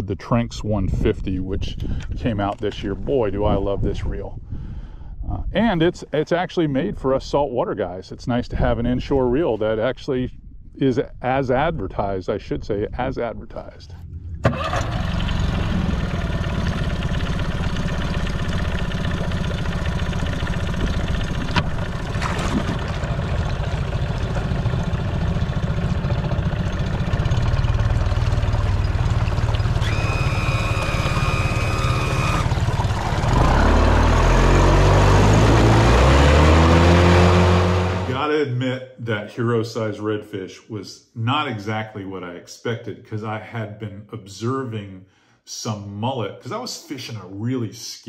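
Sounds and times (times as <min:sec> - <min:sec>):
outboard motor running: 0:14.1 - 0:38.2
water rushing and spraying: 0:29.0 - 0:38.2.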